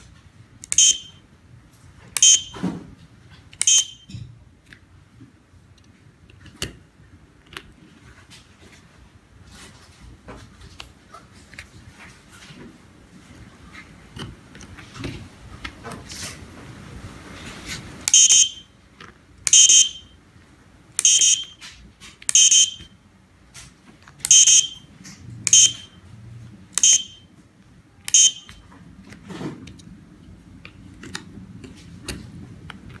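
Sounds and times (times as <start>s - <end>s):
high-pitched buzzer beeps: 0.7s - 1.2s, 2.2s - 2.6s, 3.6s - 4.1s, 18.1s - 18.7s, 19.5s - 20.1s, 21.0s - 21.6s, 22.3s - 22.9s, 24.3s - 24.9s, 25.5s - 25.9s, 26.8s - 27.2s, 28.1s - 28.6s.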